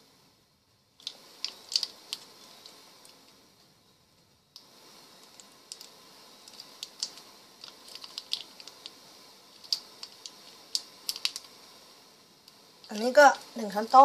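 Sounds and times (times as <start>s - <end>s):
faint steady hiss: 0.0s - 14.0s
plastic sachet crinkling: 1.0s - 3.2s, 5.2s - 11.5s.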